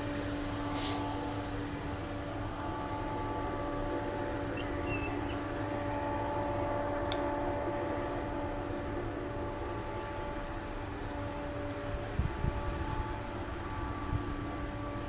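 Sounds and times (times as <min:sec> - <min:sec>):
multi-tone hum: 0:00.0 - 0:15.0
train wheels rumbling on rail: 0:00.0 - 0:15.0.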